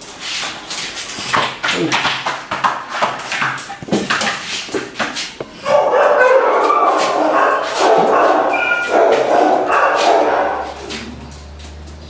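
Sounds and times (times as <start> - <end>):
dog crying in distress: 5.6 - 11.3.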